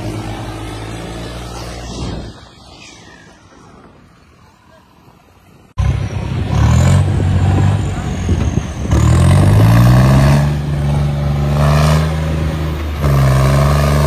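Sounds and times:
tractor diesel engine revving: 0:05.8 - 0:14.0.

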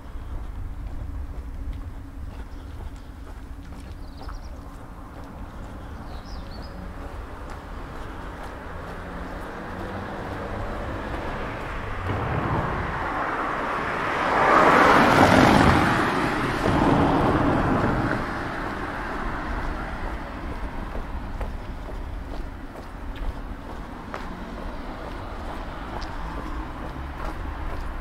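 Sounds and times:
car passing by: 0:07.5 - 0:22.1, 0:23.1 - 0:28.0.

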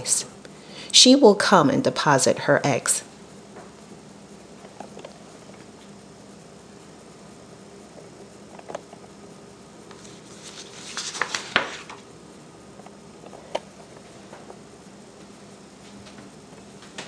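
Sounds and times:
paper page rustling: 0:09.9 - 0:12.1.

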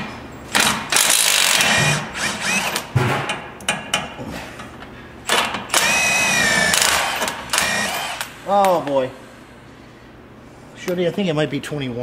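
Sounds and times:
cordless impact wrench: 0:00.5 - 0:03.0, 0:05.3 - 0:08.4.

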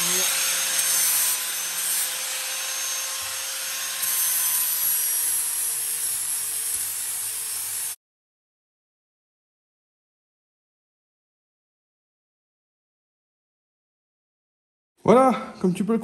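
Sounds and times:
angle grinder grinding metal: 0:00.0 - 0:08.0.

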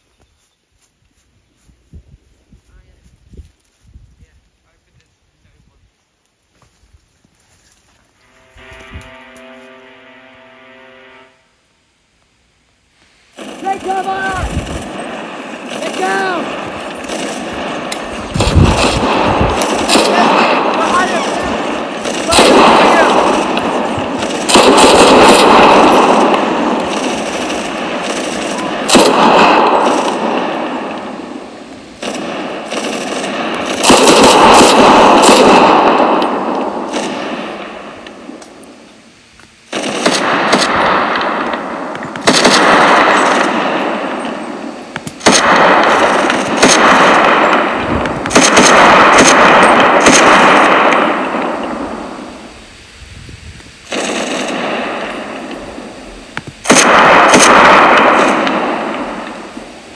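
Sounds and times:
gunshots with echo: 0:13.3 - 0:38.6, 0:39.7 - 0:52.6, 0:53.8 - 0:59.9.

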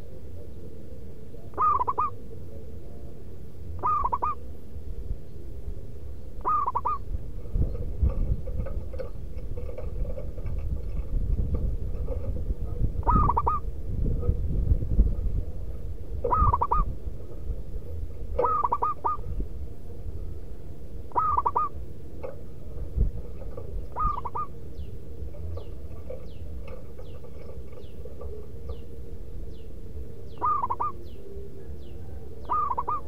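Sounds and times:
dove cooing: 0:00.0 - 0:04.6, 0:05.3 - 0:33.0
low rumble: 0:02.2 - 0:32.5.

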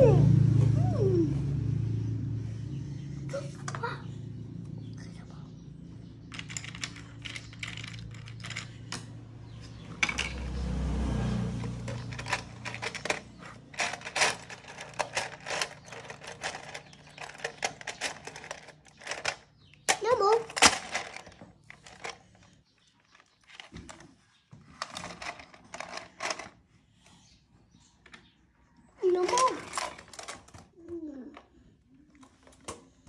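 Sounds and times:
plastic bricks clicking and clattering: 0:06.3 - 0:09.1, 0:10.0 - 0:10.4, 0:11.6 - 0:22.4, 0:24.7 - 0:26.6, 0:29.1 - 0:30.7.

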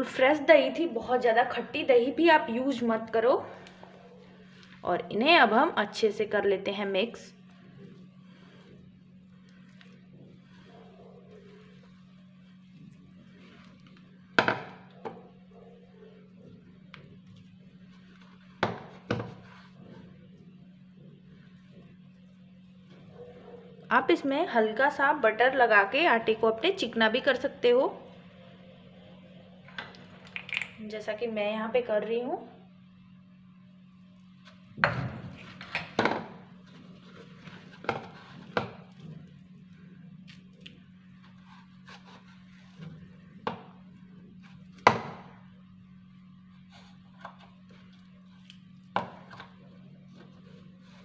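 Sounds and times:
low hum: 0:00.0 - 0:51.0
hands kneading dough: 0:02.7 - 0:24.0.

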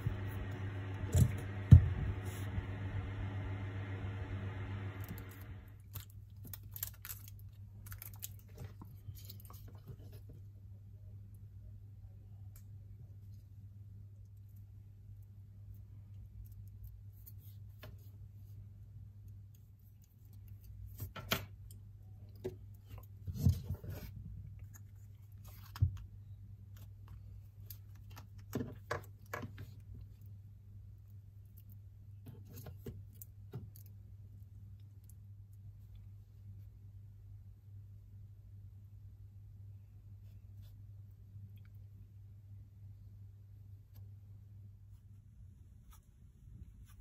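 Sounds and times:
steady low hum: 0:00.0 - 0:06.9.

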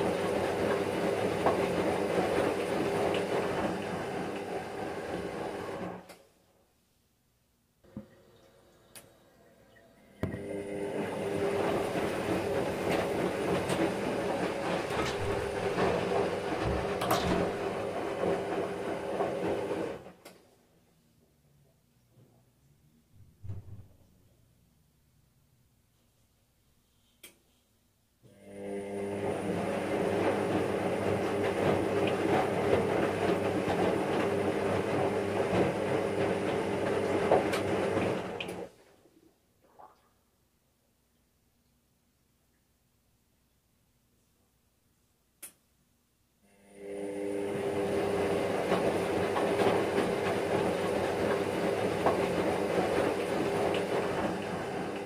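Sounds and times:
washing machine humming: 0:00.0 - 0:06.1, 0:07.8 - 0:20.3, 0:28.3 - 0:39.0, 0:46.4 - 0:55.0.

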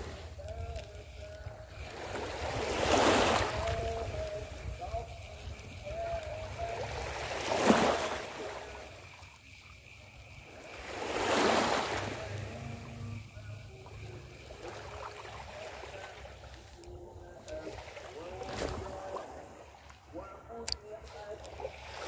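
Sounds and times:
small waves washing onto shore: 0:00.0 - 0:22.0.

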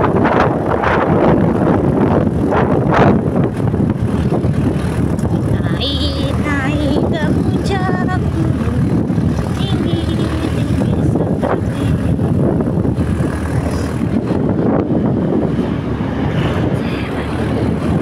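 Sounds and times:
motorcycle engine running: 0:00.0 - 0:18.0
road and wind rush: 0:00.0 - 0:18.0.

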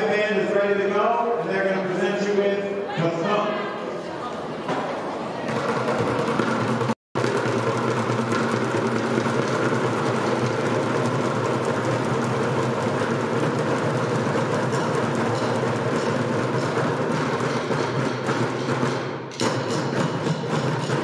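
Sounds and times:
bucket drums rolling: 0:05.5 - 0:21.0.

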